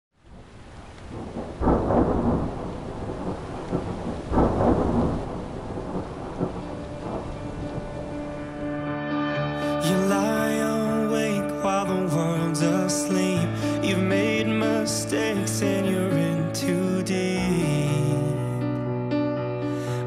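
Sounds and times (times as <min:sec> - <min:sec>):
steady rain: 0:00.2 - 0:08.6, 0:10.0 - 0:18.6
thunder rolling: 0:00.3 - 0:08.8.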